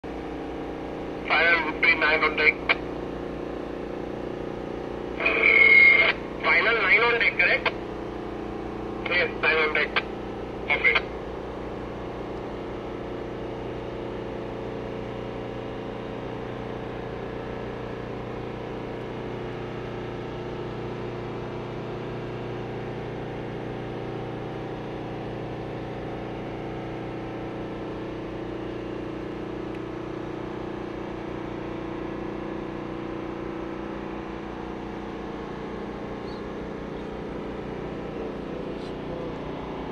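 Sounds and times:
ship engine drone: 0.1 - 39.9.

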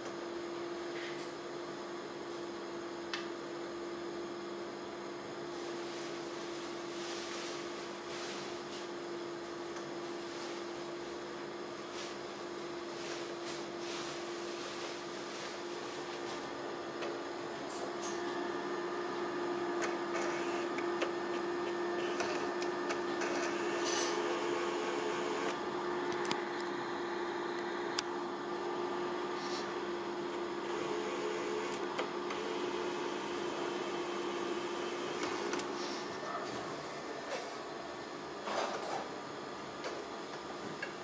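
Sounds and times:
projector fan whirring: 0.0 - 41.0.

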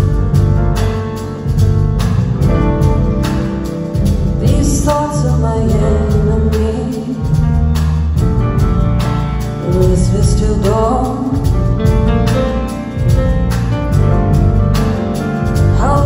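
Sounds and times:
drums steady beat: 0.0 - 16.0
live band playing soul-jazz: 0.0 - 16.0
woman singing: 4.4 - 7.4, 9.6 - 11.6, 15.7 - 16.0.

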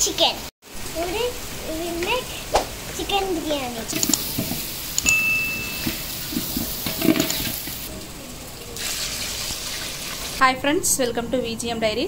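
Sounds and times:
food sizzling: 0.6 - 10.5
metal ladle scraping pot: 3.9 - 7.9
high ding: 5.0 - 6.4.

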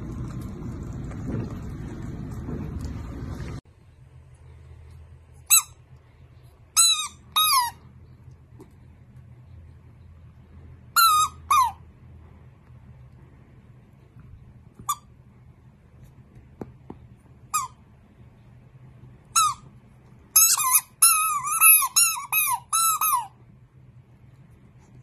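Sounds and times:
rubber ball squeaking: 6.8 - 7.8, 11.0 - 11.8, 17.5 - 17.8, 19.3 - 19.7, 20.4 - 23.4.

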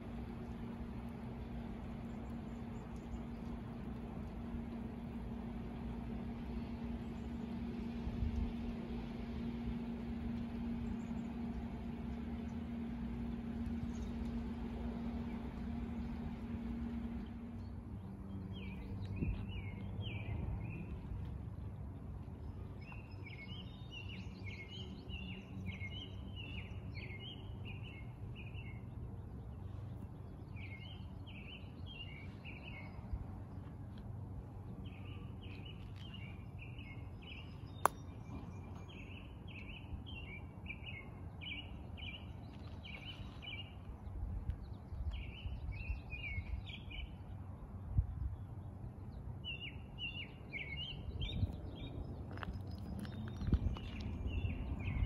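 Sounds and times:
songbird chirping: 0.0 - 55.0
steady hiss with low hum: 0.0 - 55.0.

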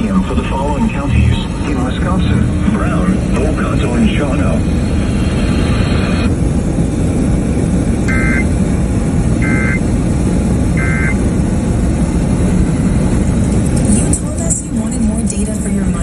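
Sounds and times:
car road noise on wet highway: 0.0 - 16.0
warbling data bursts: 8.1 - 8.5, 9.4 - 9.8, 10.8 - 11.2.

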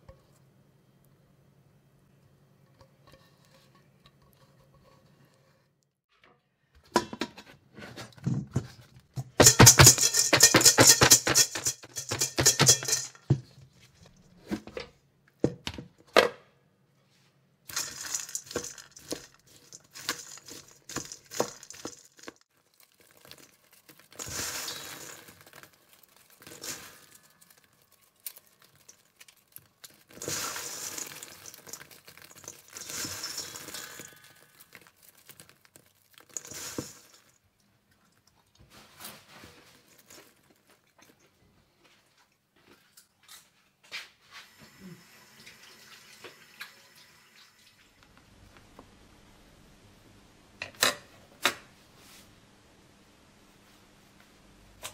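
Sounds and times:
spatula scraping popcorn in metal bowl: 9.4 - 13.1, 17.7 - 22.4
crunchy crinkling of popcorn: 17.7 - 41.3.

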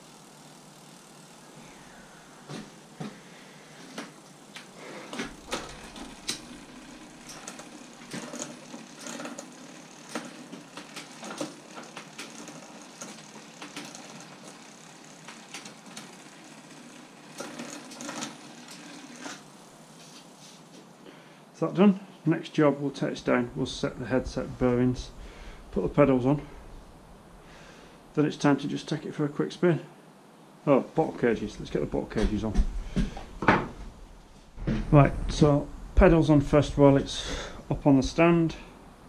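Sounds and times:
tools and bicycle parts clattering: 4.0 - 14.6, 17.4 - 19.5.

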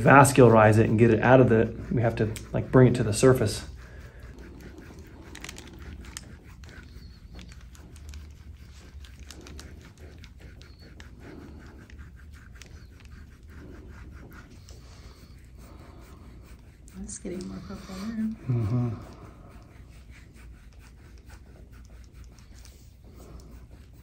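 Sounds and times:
hands rubbing on skin: 0.0 - 24.0
soft slow breaths: 7.0 - 24.0.

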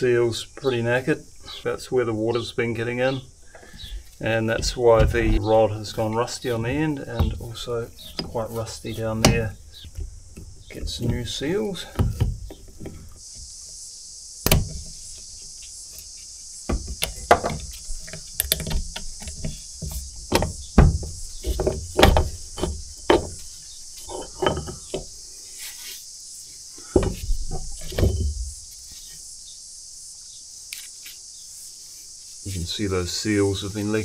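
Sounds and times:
metal parts clinking and knocking: 21.5 - 25.0.

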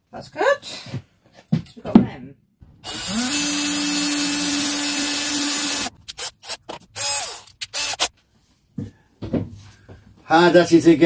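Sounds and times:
cordless drill boring into wood: 2.8 - 8.1.

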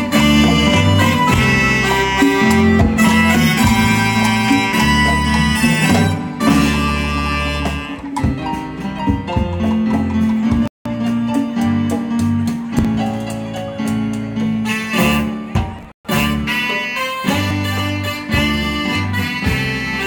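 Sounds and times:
saxophone: 0.0 - 8.6, 14.6 - 20.0
drum kit: 0.0 - 20.0
electric guitar: 0.0 - 20.0
keyboard: 0.0 - 20.0.

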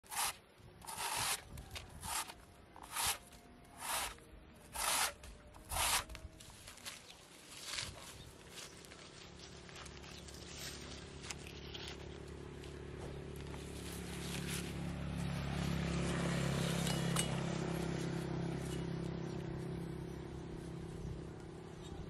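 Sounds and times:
footsteps in dry leaves: 5.7 - 16.8
vehicle engine passing: 9.3 - 22.0.

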